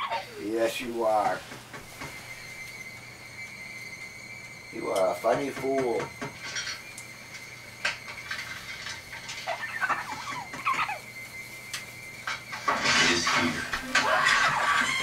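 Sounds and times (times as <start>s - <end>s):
parrot squeaky calls: 0.0s - 0.4s, 9.4s - 11.1s, 13.9s - 15.0s.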